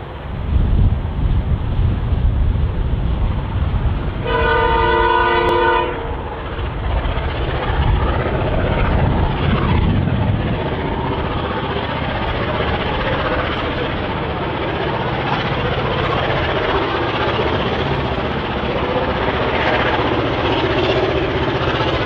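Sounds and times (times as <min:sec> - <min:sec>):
approaching train rumble: 0:00.0 - 0:22.0
wind on microphone: 0:00.0 - 0:22.0
distant locomotive horn: 0:04.2 - 0:06.4.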